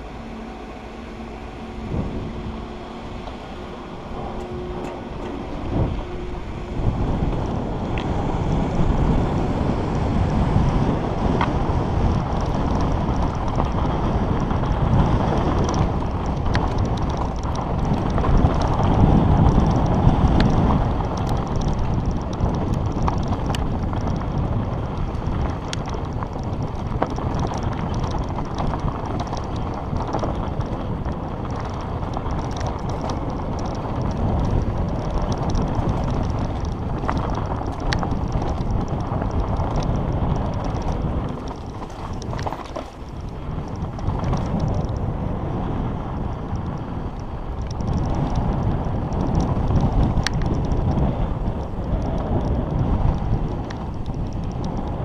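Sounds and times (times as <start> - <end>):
bike tyres rolling over gravel: 0.0 - 55.0
wind on microphone: 0.0 - 55.0
sharp ticks: 11.2 - 45.2, 45.8 - 55.0.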